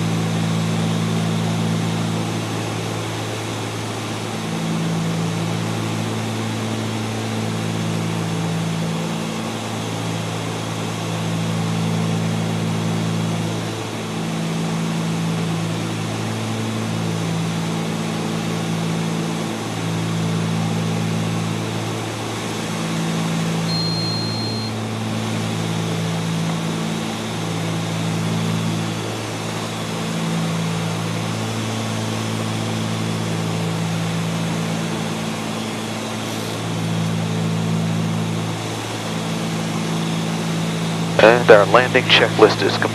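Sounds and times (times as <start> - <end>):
short high beep: 23.7 - 24.8
twin piston engines droning: 35.3 - 42.9.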